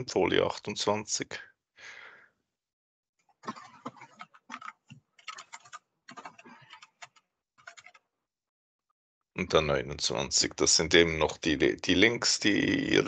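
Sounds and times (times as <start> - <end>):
keyboard keys clicking: 3.8 - 8.0.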